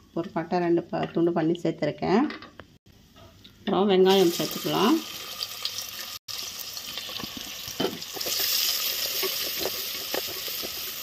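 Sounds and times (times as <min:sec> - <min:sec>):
onions sizzling in oil: 0:04.1 - 0:11.0.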